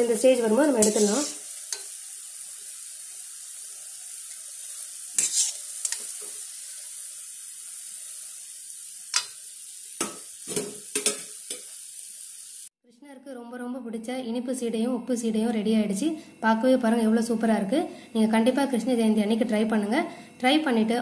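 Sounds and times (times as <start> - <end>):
dough sizzling in hot oil: 0.0 - 12.7.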